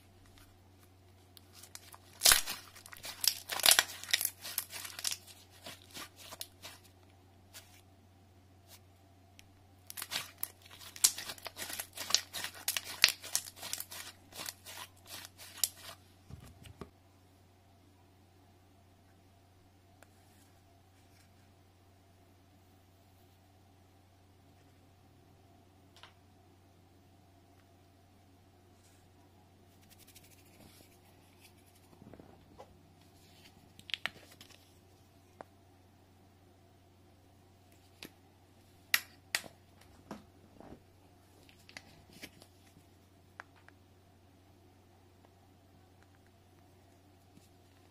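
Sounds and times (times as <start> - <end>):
plastic tub crackling rustles: 1.4 - 6.9, 9.9 - 16.0.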